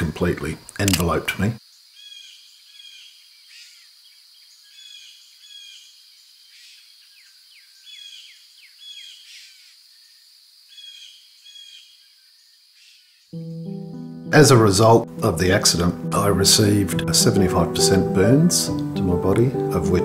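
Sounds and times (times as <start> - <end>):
birds chirping and calling: 6.5 - 9.7, 10.7 - 13.3.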